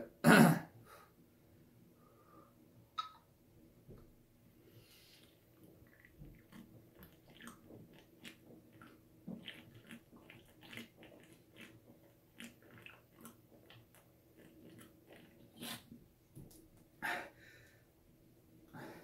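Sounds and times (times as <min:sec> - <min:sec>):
person gulping beer: 0:05.3 - 0:16.0.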